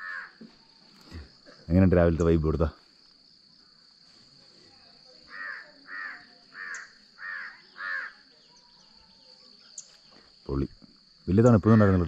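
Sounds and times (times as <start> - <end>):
crow cawing: 0.0 - 0.5, 5.3 - 8.3.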